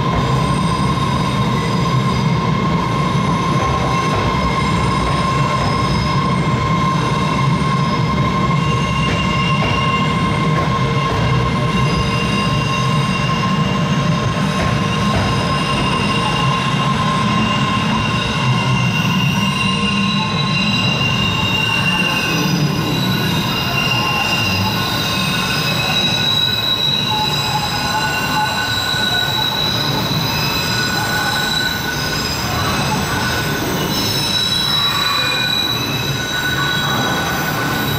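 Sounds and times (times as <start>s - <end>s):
low train rumble: 0.0s - 37.9s
subway train wheels squealing: 0.0s - 37.9s.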